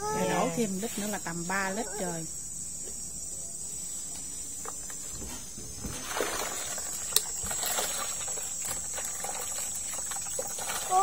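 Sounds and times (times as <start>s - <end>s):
insects chirring: 0.0s - 11.0s
water pouring into a container: 6.0s - 11.0s.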